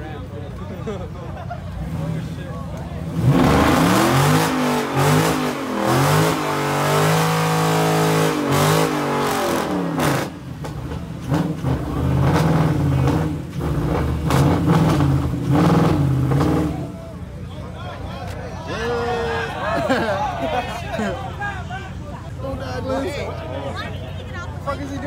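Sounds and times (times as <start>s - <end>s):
car engine revving: 1.7s - 17.0s.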